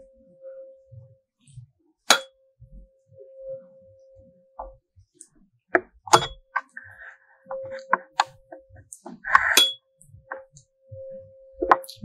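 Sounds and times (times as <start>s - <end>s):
tuning fork knocks and clinks: 0.0s - 6.7s
tuning fork humming: 0.0s - 12.0s.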